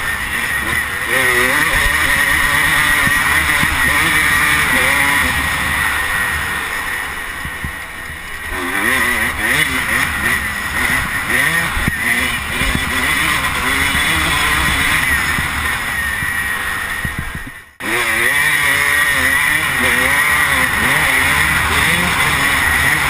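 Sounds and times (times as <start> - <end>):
dirt bike engine revving: 0.0 - 23.0
wind on microphone: 17.0 - 17.6.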